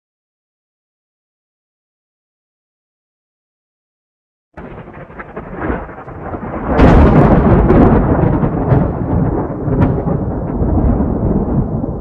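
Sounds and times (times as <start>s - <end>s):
crackles: 4.6s - 12.0s
deep thunder-like rumbling: 4.6s - 12.0s.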